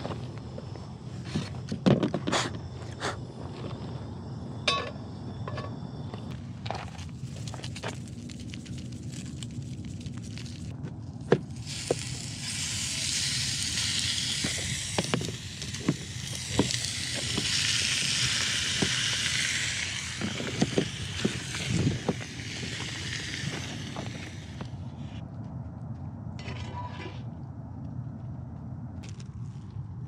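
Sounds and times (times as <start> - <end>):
chicken sizzling in a pan: 11.6 - 24.6.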